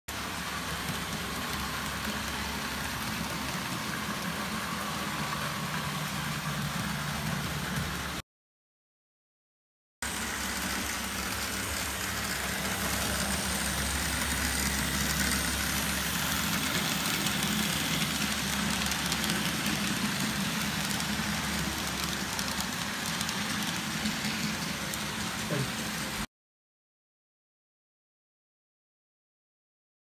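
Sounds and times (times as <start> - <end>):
model train motor rumble: 10.1 - 26.2.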